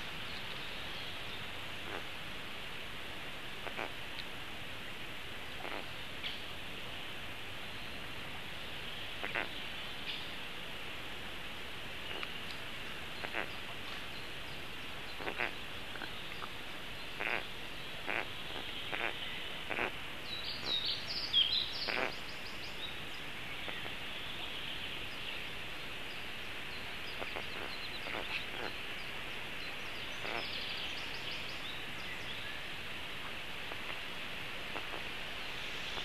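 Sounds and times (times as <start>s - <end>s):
songbirds singing: 0.0s - 2.2s, 7.7s - 10.4s, 12.0s - 34.0s
steady hiss: 0.0s - 36.0s.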